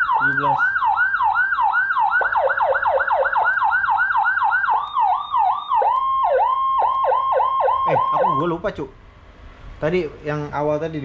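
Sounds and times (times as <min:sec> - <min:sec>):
electronic siren: 0:00.0 - 0:08.6.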